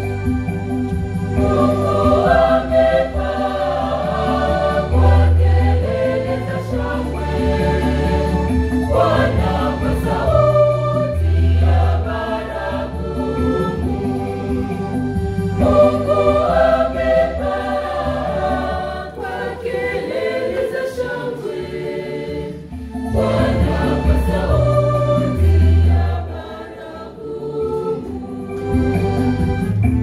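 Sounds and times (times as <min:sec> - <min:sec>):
choir singing a hymn: 0:00.0 - 0:30.0
electronic organ bass notes: 0:28.2 - 0:30.0.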